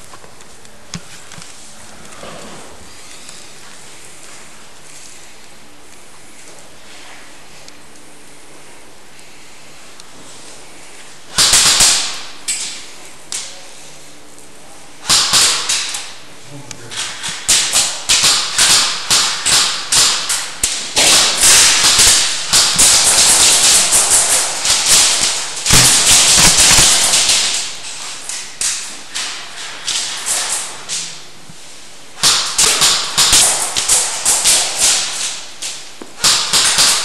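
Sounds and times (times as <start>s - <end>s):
airsoft gunfire cracks: 17.2s - 27.8s, 32.2s - 35.5s.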